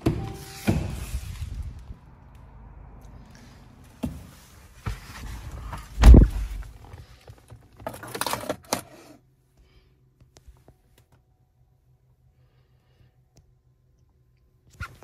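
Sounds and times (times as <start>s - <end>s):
car door shutting: 5.6s - 6.7s.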